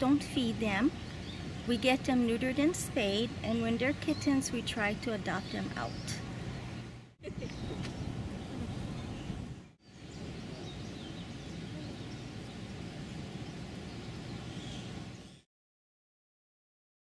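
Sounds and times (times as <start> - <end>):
low background rumble: 0.0 - 15.4
faint bird chirps: 7.4 - 15.5.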